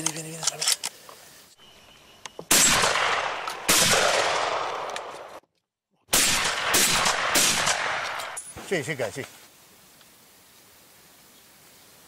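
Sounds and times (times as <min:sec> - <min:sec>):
shotgun shots with echo: 0:02.5 - 0:05.1, 0:06.1 - 0:08.4.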